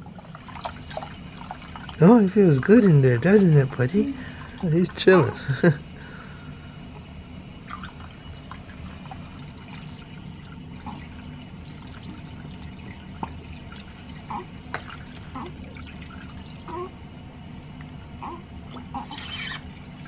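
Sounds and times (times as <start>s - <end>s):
water splashes and drips: 0.0s - 5.3s, 7.6s - 16.8s, 17.7s - 18.0s
steady low hum: 0.0s - 20.0s
tap water running into sink: 7.6s - 16.7s.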